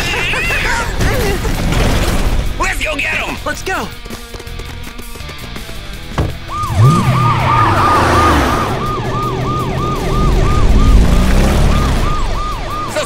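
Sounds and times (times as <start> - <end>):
vehicle engine revving: 6.4 - 12.8
police siren yelping: 6.4 - 13.0.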